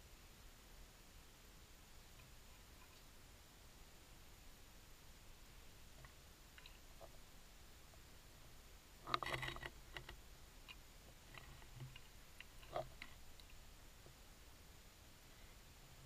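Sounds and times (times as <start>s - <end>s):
low hiss: 0.0s - 16.0s.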